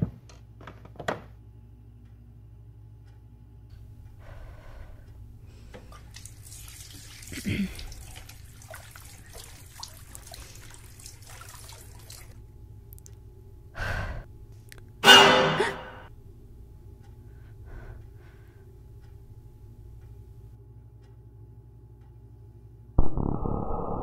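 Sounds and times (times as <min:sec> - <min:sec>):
tap water running into basin: 0:05.7 - 0:12.4.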